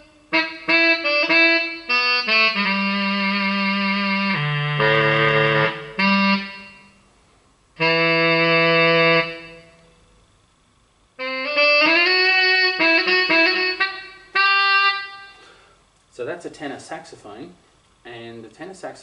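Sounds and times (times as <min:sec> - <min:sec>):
synthesized saxophone notes: 0:00.0 - 0:07.1, 0:07.8 - 0:10.2, 0:11.2 - 0:15.8.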